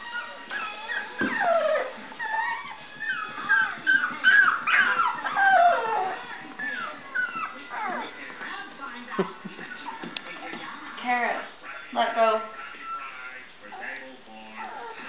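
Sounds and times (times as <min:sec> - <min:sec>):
puppies whining and yipping: 0:00.0 - 0:08.4, 0:12.5 - 0:15.0.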